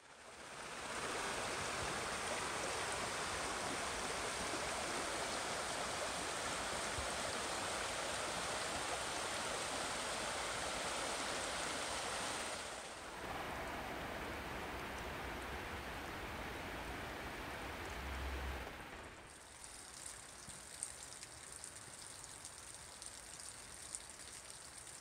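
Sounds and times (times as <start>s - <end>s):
stream running over stones: 0.0s - 25.0s.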